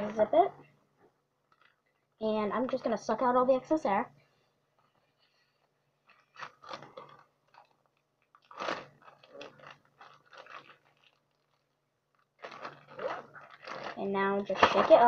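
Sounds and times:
plastic bag crinkling: 1.4s - 2.9s, 4.7s - 15.0s.

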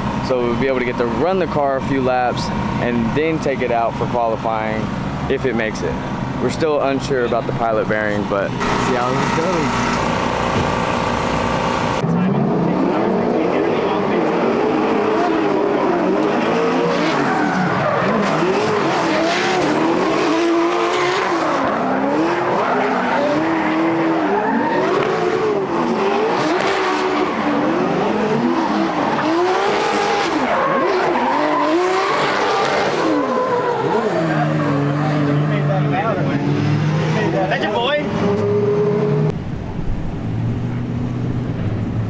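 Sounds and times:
car engine revving: 0.0s - 42.0s
tires squealing and skidding: 12.8s - 39.0s.

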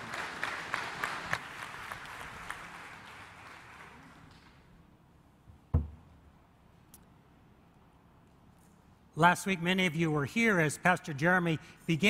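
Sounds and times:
congregation applauding: 0.0s - 4.7s
low thump: 5.7s - 6.2s.

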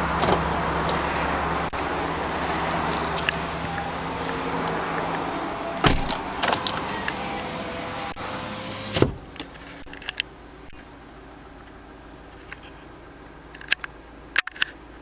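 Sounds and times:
motor clunks: 2.9s - 9.4s.

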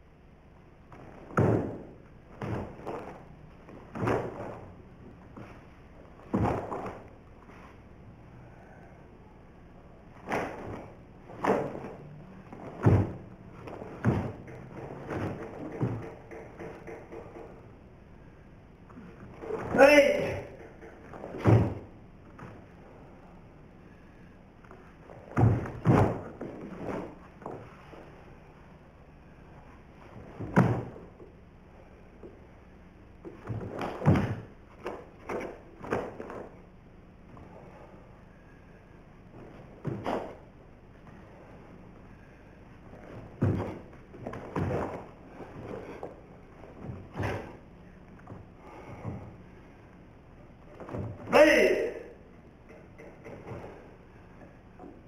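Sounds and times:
feet stamping on floor: 10.3s - 17.4s, 42.9s - 47.6s.

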